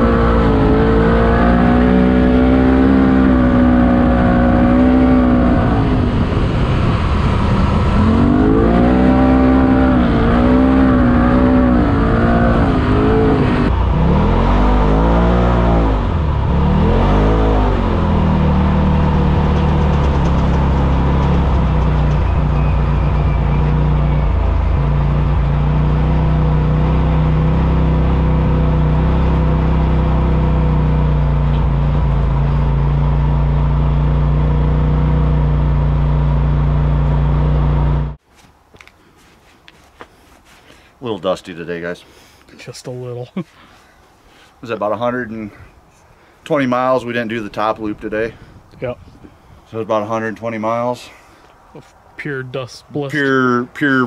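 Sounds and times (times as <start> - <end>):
off-road vehicle engine revving: 0.0 - 38.2.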